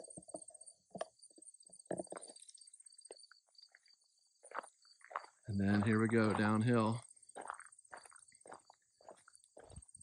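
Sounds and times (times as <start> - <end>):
insects chirring: 0.0 - 10.0
footsteps on gravel and grass: 3.0 - 10.0.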